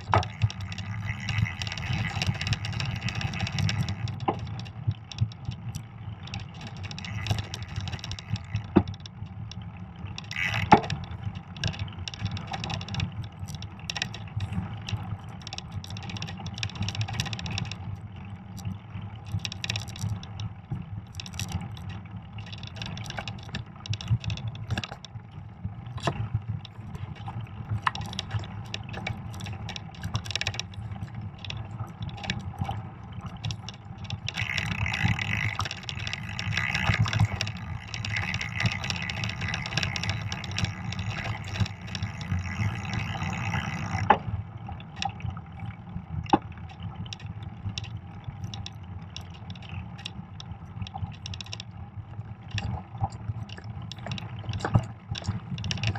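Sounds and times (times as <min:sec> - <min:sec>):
bike clicking and rattling: 0:00.0 - 0:55.9
bike tyres rumbling on snow: 0:34.0 - 0:44.4.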